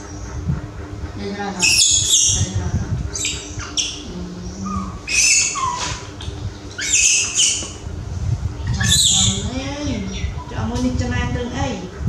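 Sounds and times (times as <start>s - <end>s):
baby monkey screeching: 1.6s - 7.9s, 8.6s - 10.5s.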